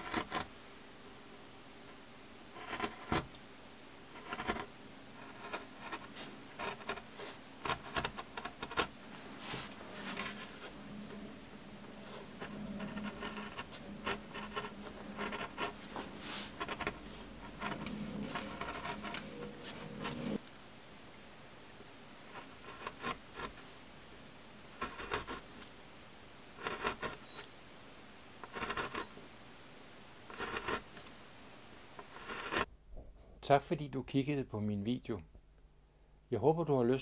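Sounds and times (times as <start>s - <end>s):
gouge scraping wood: 0.0s - 0.5s, 2.5s - 3.3s, 4.1s - 20.4s, 22.2s - 23.6s, 24.8s - 25.5s, 26.6s - 27.4s, 28.4s - 29.1s, 30.3s - 31.0s, 32.0s - 32.7s
steady low hum: 0.0s - 36.4s.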